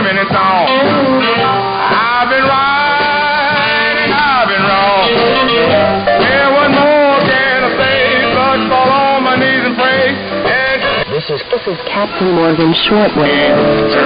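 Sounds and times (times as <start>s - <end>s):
music with singing on radio: 0.0s - 14.0s.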